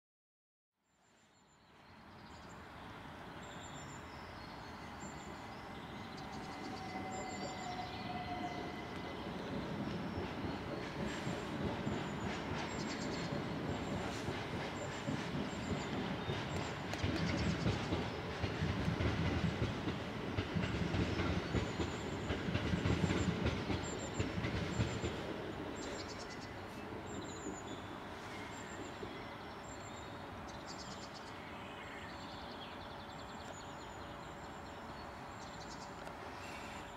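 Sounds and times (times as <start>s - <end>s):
diesel locomotive engine: 4.0s - 30.5s.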